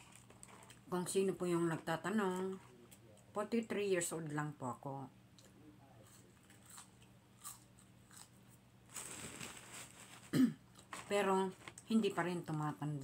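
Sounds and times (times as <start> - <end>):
chewing fries: 0.0 - 0.9, 5.4 - 11.9.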